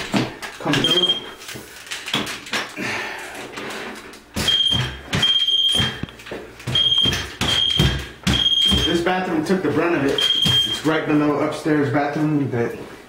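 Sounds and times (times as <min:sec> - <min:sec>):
moisture meter beeping: 0:00.7 - 0:01.4, 0:04.4 - 0:09.1, 0:10.1 - 0:10.9
probe knocking on ceiling: 0:04.4 - 0:09.0.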